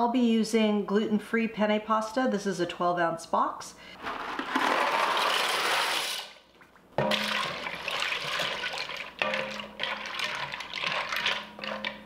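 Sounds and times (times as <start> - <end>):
spoon stirring and sloshing liquid: 4.1 - 12.0.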